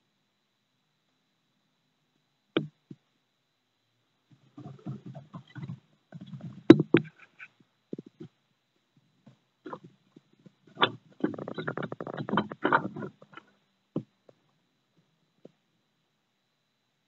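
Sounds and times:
tortoise shells knocking and scraping: 4.4s - 8.4s, 9.2s - 14.5s.

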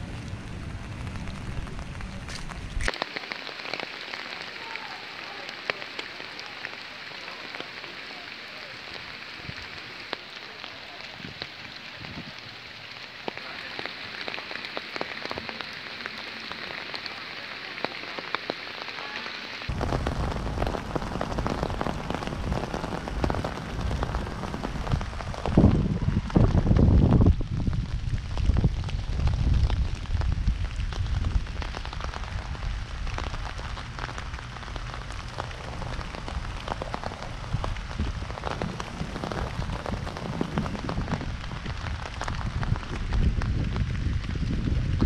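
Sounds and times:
low rumble: 0.0s - 2.9s, 19.7s - 45.0s
steady rain: 0.0s - 45.0s.

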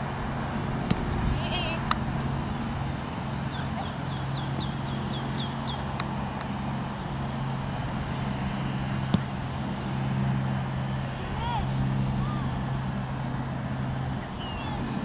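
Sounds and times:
low mechanical hum: 0.0s - 15.0s
bird chirping: 3.1s - 5.9s, 14.2s - 14.9s.

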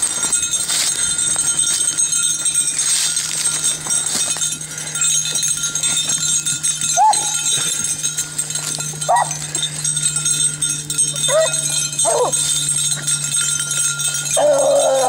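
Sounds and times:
dry brush rustling: 0.0s - 10.6s
dog yip: 7.0s - 7.3s, 9.1s - 9.3s.

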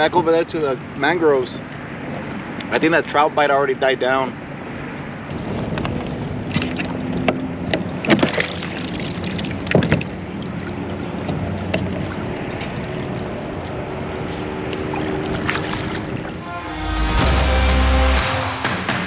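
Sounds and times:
wind: 0.0s - 17.2s
water noise: 4.3s - 18.9s.

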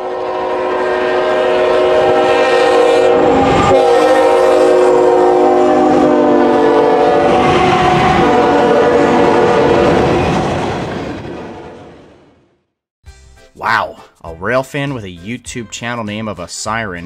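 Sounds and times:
locomotive air horn chord: 0.0s - 10.1s
train rumble: 0.0s - 12.4s.

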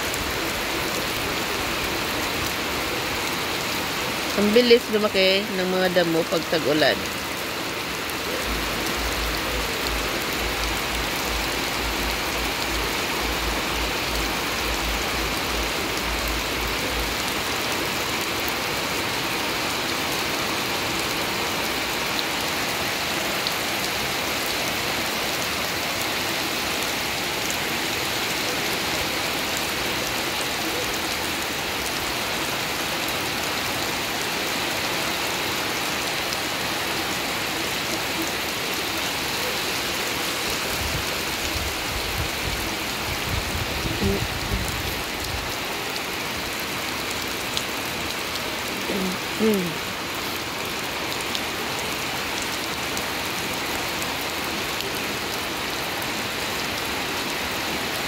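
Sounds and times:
rain falling on grass and puddle: 0.0s - 58.0s.

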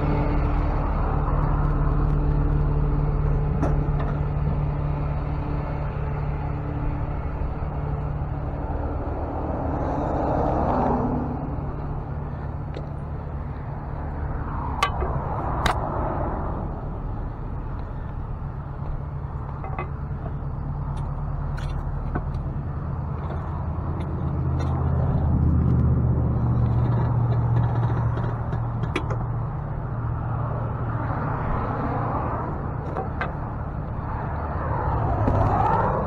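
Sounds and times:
truck engine running: 0.0s - 36.0s.

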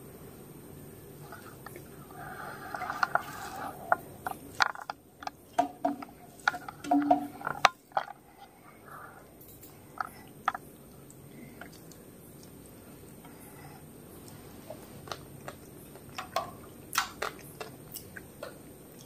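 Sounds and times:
fingers mixing food on metal plate: 1.4s - 8.6s
open-mouthed chewing: 9.8s - 19.0s.

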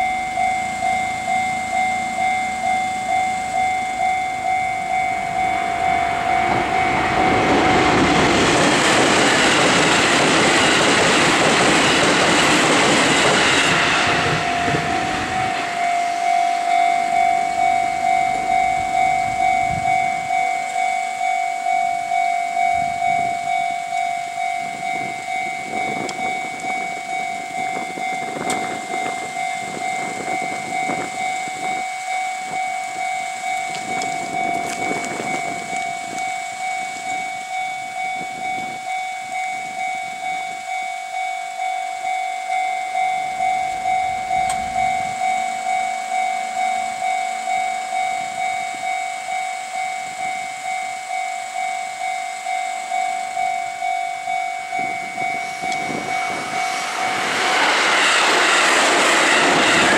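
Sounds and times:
electric train passing: 0.0s - 59.9s
level-crossing warning bell ringing: 0.0s - 59.9s
rail rumble and knocks: 4.9s - 15.9s.

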